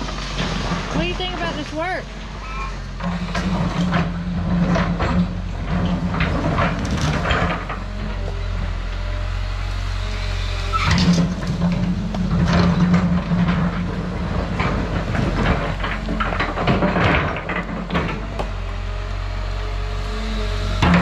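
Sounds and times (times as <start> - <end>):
excavator engine hum: 0.0 - 21.0
excavator bucket clanks and knocks: 3.0 - 8.0, 10.8 - 18.6, 20.8 - 21.0.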